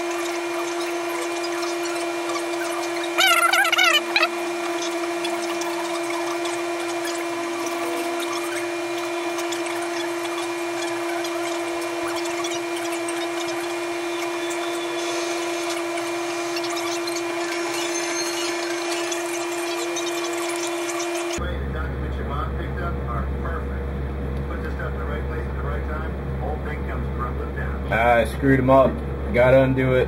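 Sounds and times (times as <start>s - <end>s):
warbling high tone: 0.0s - 21.4s
steady hum: 0.0s - 30.0s.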